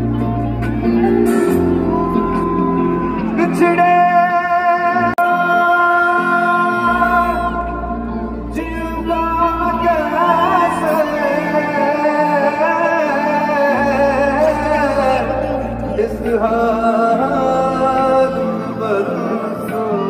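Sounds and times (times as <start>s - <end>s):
live band playing: 0.0s - 20.0s
man singing: 2.9s - 20.0s.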